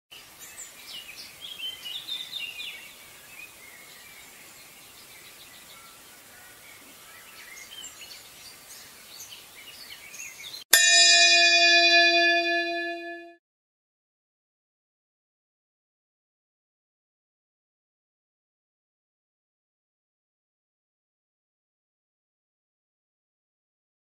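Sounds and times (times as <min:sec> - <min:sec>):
large brass bell ringing: 0:10.7 - 0:13.4.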